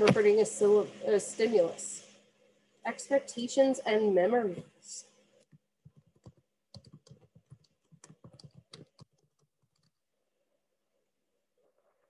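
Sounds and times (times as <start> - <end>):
faint keyboard typing: 5.4 - 10.1.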